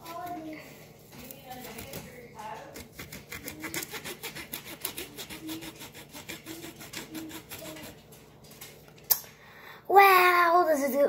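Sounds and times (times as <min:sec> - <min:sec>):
knife sawing through apple: 0:00.0 - 0:00.5, 0:01.2 - 0:08.1.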